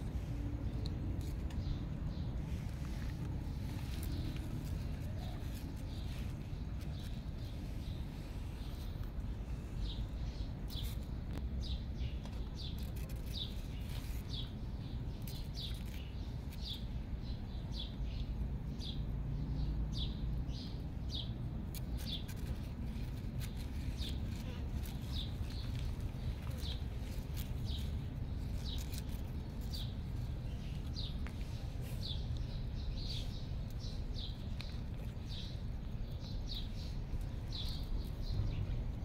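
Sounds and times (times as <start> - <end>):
low background rumble: 0.0 - 39.0
small bird chirping: 0.2 - 39.0.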